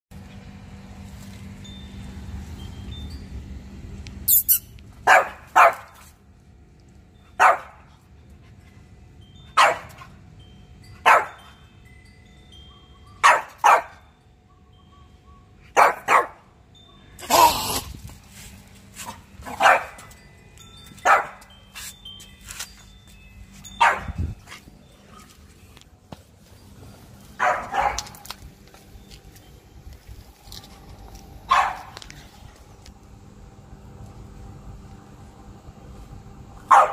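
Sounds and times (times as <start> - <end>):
dog barking: 5.0 - 5.9, 7.4 - 7.8, 9.6 - 9.9, 11.1 - 11.4, 13.2 - 14.0, 15.8 - 16.4, 19.5 - 20.0, 21.1 - 21.4, 27.4 - 28.2, 31.5 - 32.0, 36.7 - 36.9.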